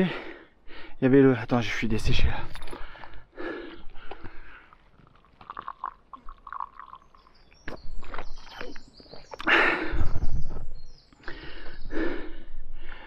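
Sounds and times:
person gulping from water bottle: 0:03.9 - 0:09.6.

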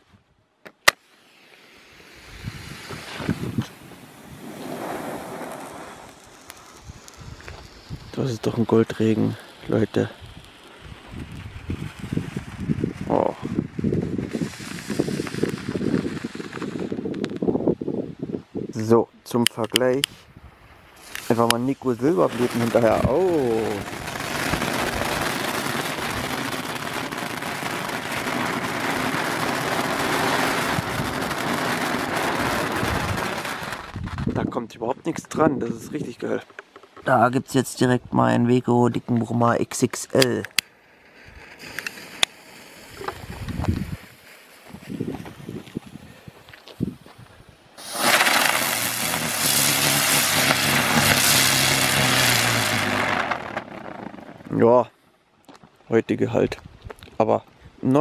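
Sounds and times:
firework hissing spray: 0:00.9 - 0:17.0, 0:20.6 - 0:34.0, 0:41.0 - 0:47.1, 0:47.7 - 0:54.5
sparkler fizzing and crackling: 0:00.9 - 0:17.5, 0:20.8 - 0:34.3, 0:40.2 - 0:47.1, 0:47.7 - 0:54.6.

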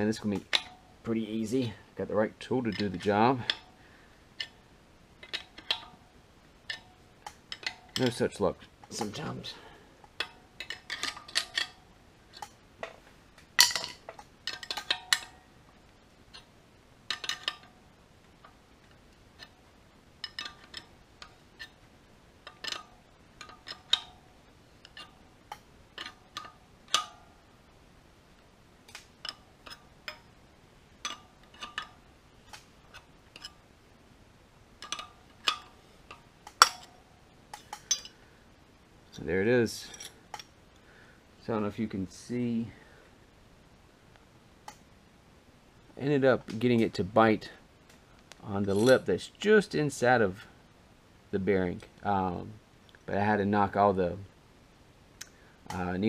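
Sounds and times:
wrench clicking on metal bolt: 0:05.2 - 0:06.0, 0:10.2 - 0:11.8, 0:13.6 - 0:15.4, 0:17.1 - 0:17.8, 0:20.2 - 0:21.8, 0:22.4 - 0:24.2, 0:24.8 - 0:27.2, 0:31.0 - 0:33.6, 0:34.8 - 0:38.2.

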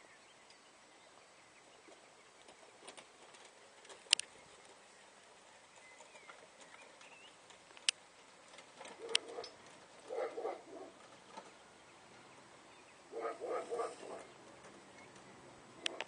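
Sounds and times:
sharp clicks: 0:02.4 - 0:04.8, 0:07.5 - 0:08.0, 0:08.6 - 0:09.8
pigeon cooing: 0:08.8 - 0:11.0, 0:13.1 - 0:14.4, 0:15.8 - 0:16.0.

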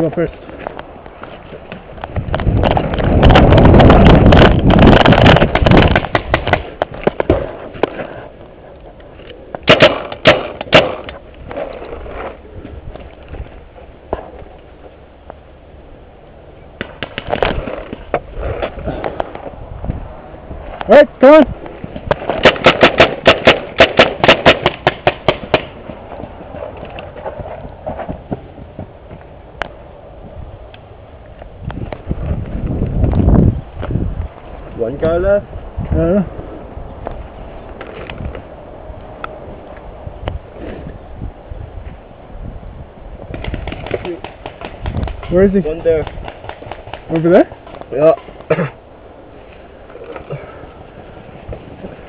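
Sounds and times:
paintball marker shots: 0:05.0 - 0:07.5, 0:09.6 - 0:11.2, 0:22.1 - 0:25.8, 0:43.3 - 0:45.3
rustling and footfalls: 0:25.4 - 0:29.4.

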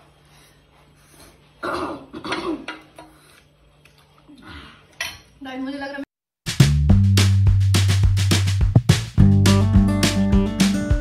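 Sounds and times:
music: 0:06.5 - 0:11.0.

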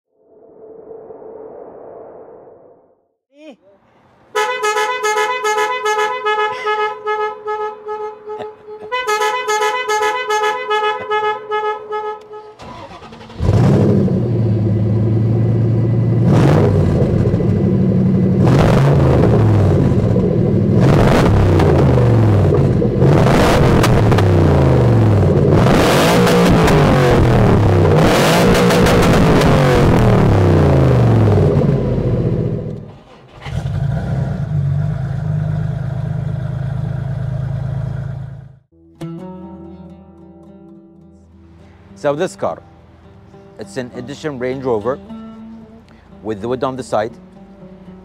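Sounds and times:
car engine revving: 0:12.2 - 0:38.7.

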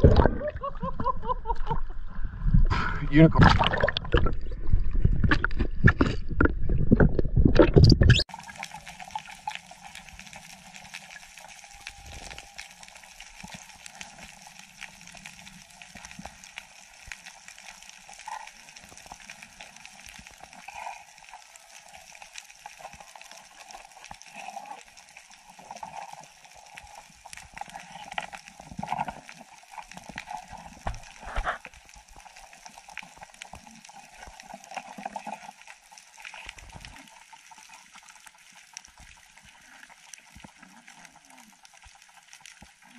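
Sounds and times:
underwater churning rush: 0:00.0 - 0:13.2
faint gurgles: 0:00.0 - 0:14.0
muffled underwater hiss: 0:08.3 - 0:42.9.

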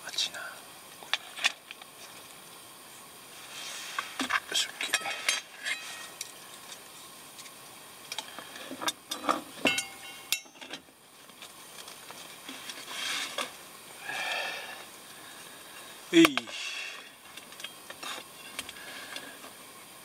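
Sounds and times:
soft rustle: 0:03.3 - 0:07.6, 0:11.2 - 0:13.6
small clicks and metal knocks: 0:04.2 - 0:13.5, 0:17.2 - 0:19.6
metallic ring: 0:04.9 - 0:06.2, 0:09.1 - 0:10.7.

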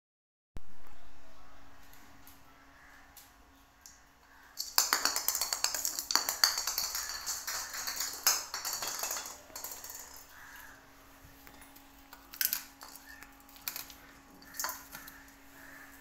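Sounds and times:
plastic ball rolling on tile: 0:04.3 - 0:10.8, 0:12.1 - 0:15.8.

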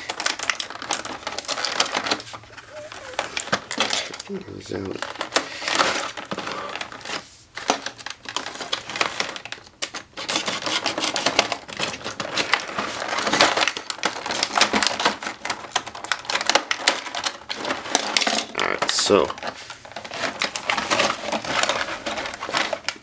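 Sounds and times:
plastic packaging crackling: 0:00.0 - 0:23.0
shredded paper rustling: 0:18.9 - 0:23.0.

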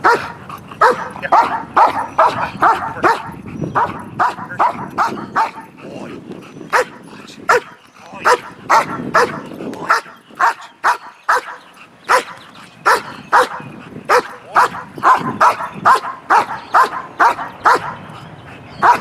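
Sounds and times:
dog barking sharply: 0:00.0 - 0:05.6, 0:06.7 - 0:07.7, 0:08.3 - 0:18.0.

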